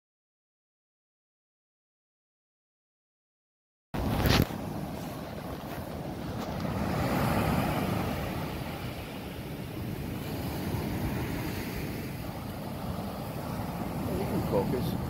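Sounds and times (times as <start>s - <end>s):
waves washing on beach: 4.0s - 15.0s.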